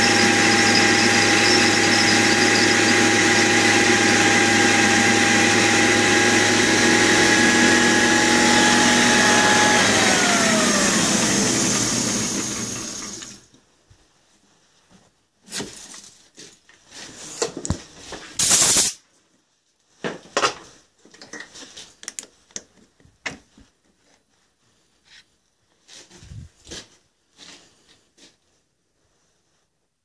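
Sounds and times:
metal lathe winding down: 0:00.0 - 0:13.4.

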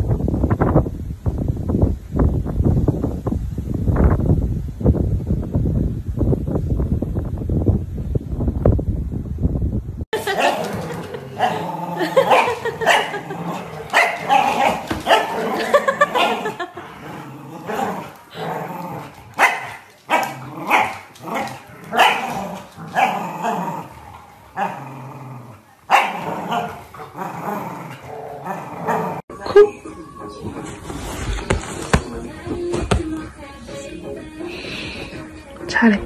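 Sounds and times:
dogs barking: 0:10.2 - 0:16.8, 0:17.7 - 0:23.8, 0:25.9 - 0:27.2
dogs growling: 0:10.2 - 0:29.3.

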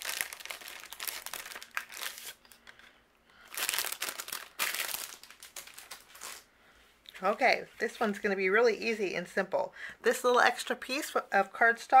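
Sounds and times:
plastic bag crinkling: 0:00.0 - 0:06.5.

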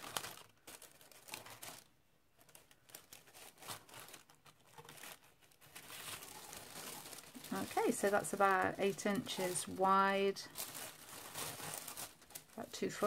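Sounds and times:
fabric and packaging crinkling: 0:00.0 - 0:13.0.

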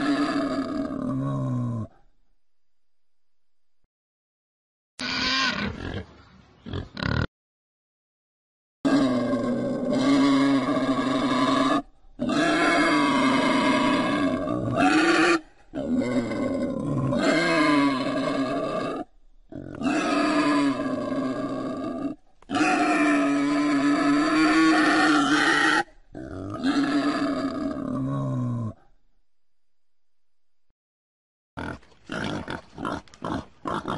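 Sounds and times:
wild boar calling: 0:05.0 - 0:07.3, 0:08.9 - 0:28.8.

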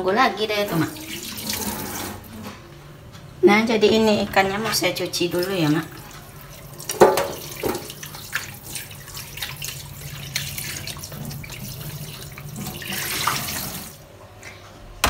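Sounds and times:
splashing while rinsing fish: 0:05.4 - 0:14.0
tap water running into sink: 0:05.4 - 0:14.0.

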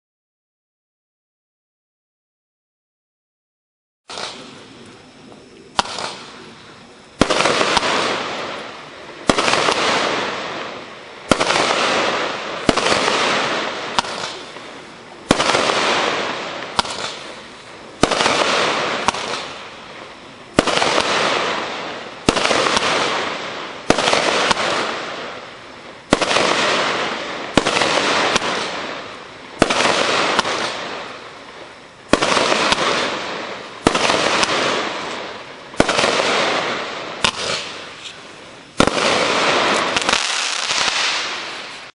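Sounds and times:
crackle of firework stars: 0:04.1 - 0:41.9
firework reports: 0:04.1 - 0:41.9.

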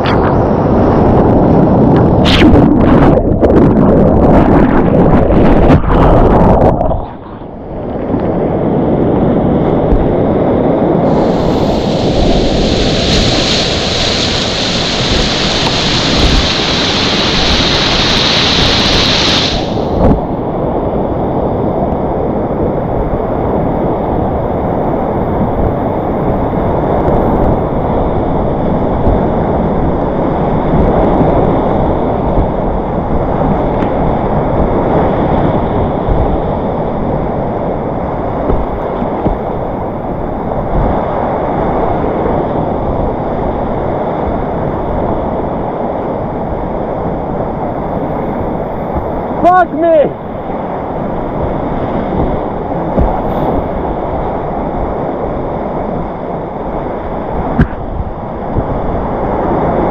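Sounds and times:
whitewater rapids rushing: 0:11.1 - 0:20.1.

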